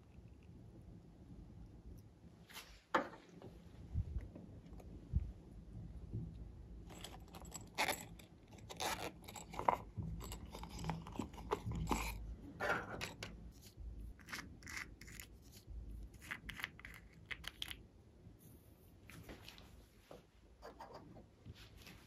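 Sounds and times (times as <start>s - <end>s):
plastic cases clicking and scraping: 7.0s - 13.4s.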